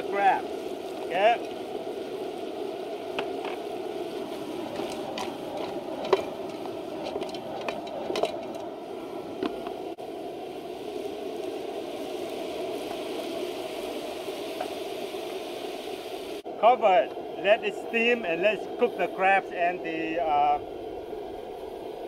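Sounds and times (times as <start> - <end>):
crackles and clicks: 0.0 - 10.0
gas burner running: 0.0 - 22.0.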